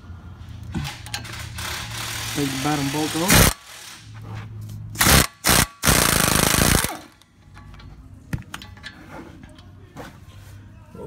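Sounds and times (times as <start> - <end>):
impact wrench hammering: 5.0 - 7.1.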